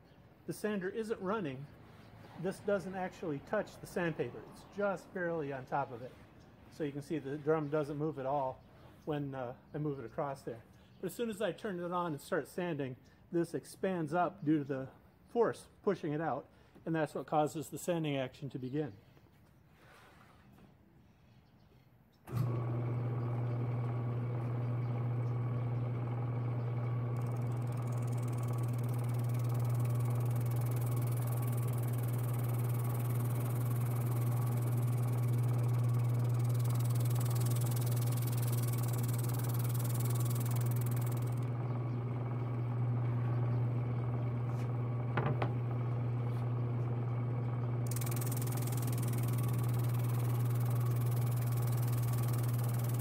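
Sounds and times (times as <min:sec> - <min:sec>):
drum sander humming: 0:22.3 - 0:53.0
quick ticks: 0:47.9 - 0:53.0.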